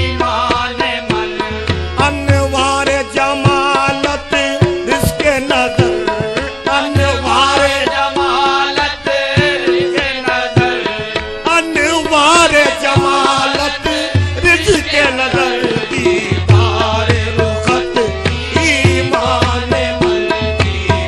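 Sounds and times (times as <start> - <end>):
harmonium tones: 0.0 - 21.0
tabla drumming: 0.0 - 21.0
person singing ornamented melody: 2.1 - 6.2, 11.5 - 19.4.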